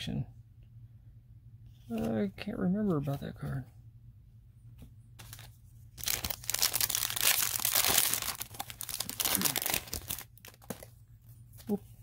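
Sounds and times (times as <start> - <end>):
foil wrapper tearing and crinkling: 6.0 - 10.9.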